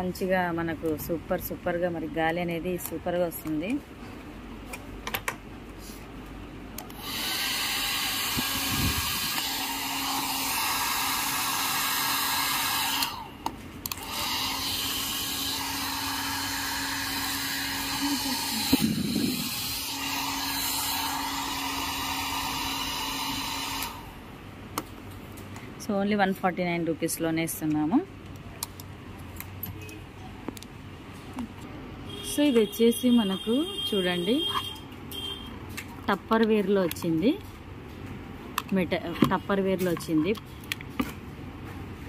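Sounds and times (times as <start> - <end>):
hair dryer running: 6.9 - 24.3.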